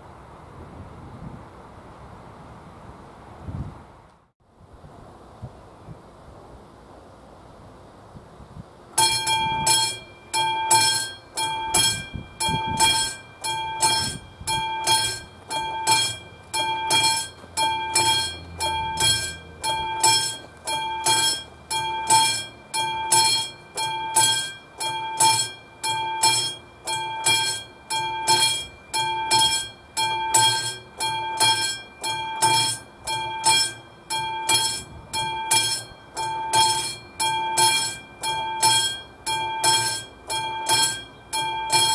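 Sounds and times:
level-crossing warning bell ringing: 0:08.9 - 0:41.9.

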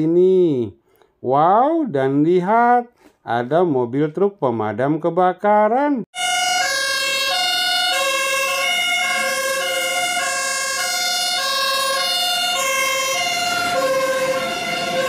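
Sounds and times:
fire engine two-tone siren: 0:06.2 - 0:15.0.

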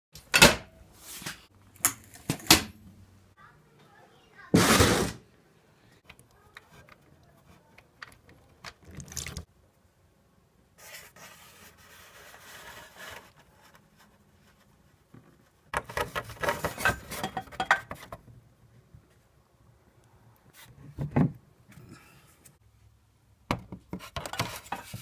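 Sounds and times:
scrapes and light taps: 0:23.9 - 0:25.0.

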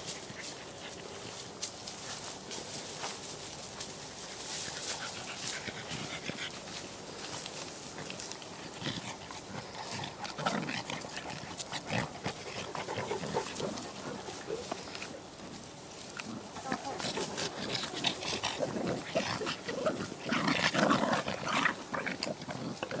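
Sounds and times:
dogs playing vocalizing: 0:04.6 - 0:23.0.

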